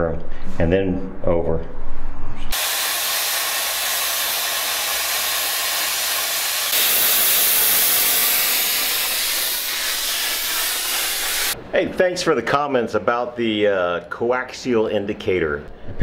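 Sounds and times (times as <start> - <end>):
plasma cutter hissing: 2.5 - 11.6.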